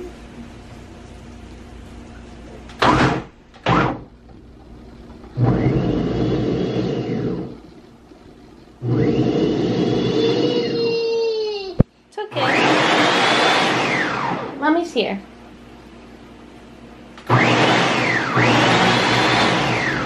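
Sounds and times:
blender chopping hard bread: 0:05.4 - 0:07.6, 0:08.8 - 0:10.7, 0:12.3 - 0:14.6, 0:17.2 - 0:20.0.

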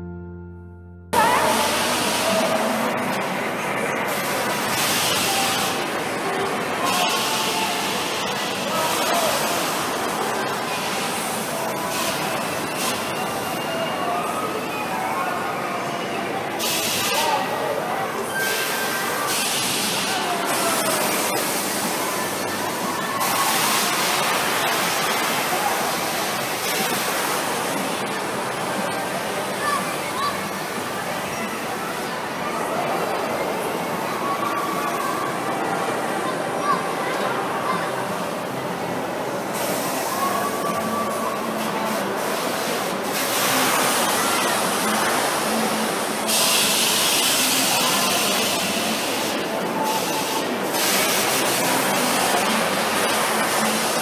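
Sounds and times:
crowd voices: 0:00.0 - 0:54.0
ride mechanical noise: 0:01.1 - 0:54.0
loud hiss of air: 0:46.2 - 0:52.0.

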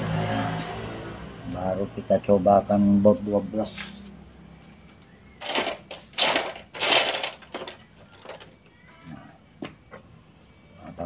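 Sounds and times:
metal hardware clinking: 0:05.4 - 0:08.6.

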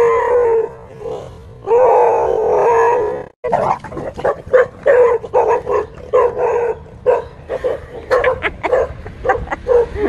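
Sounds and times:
dog barking: 0:04.2 - 0:10.0.

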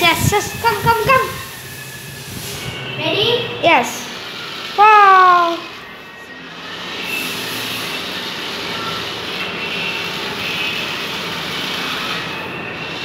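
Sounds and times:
toy car motor whirring: 0:00.0 - 0:13.0.

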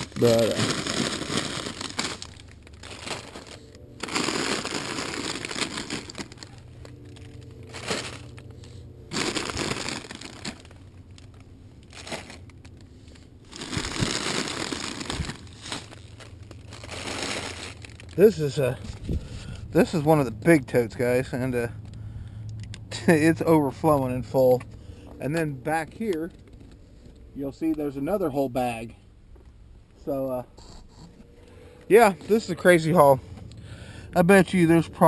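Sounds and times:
plastic bags rustling and crackling: 0:00.0 - 0:20.3.

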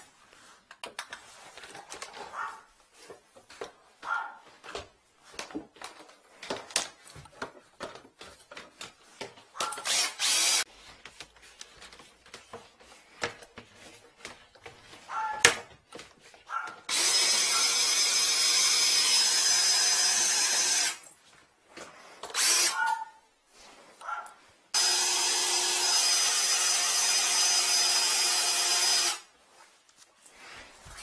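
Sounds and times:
cordless drill running: 0:09.8 - 0:10.6, 0:16.9 - 0:21.0, 0:22.3 - 0:22.8, 0:24.8 - 0:29.3.

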